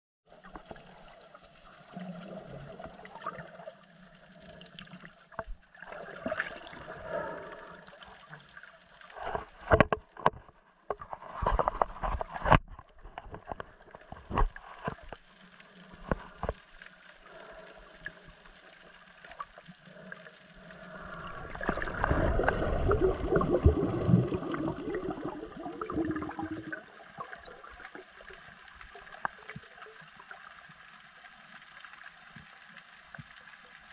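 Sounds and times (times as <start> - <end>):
water sloshing and gurgling: 0.3 - 33.9
rush of water: 17.2 - 30.2.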